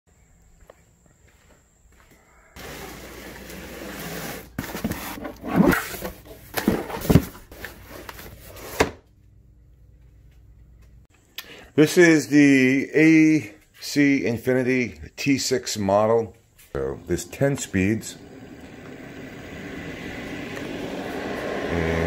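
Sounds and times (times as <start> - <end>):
cardboard box scraping: 2.6 - 8.9.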